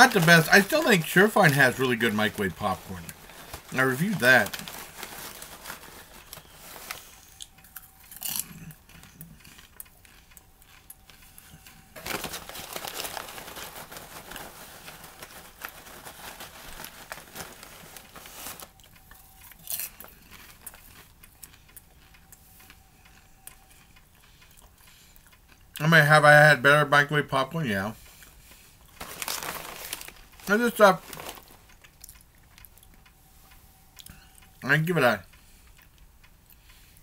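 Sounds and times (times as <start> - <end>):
paper bag rustling: 0.0 - 7.2, 12.0 - 18.8, 29.0 - 31.8
popcorn crunching and chewing: 0.0 - 26.6, 27.4 - 33.2, 34.0 - 37.0.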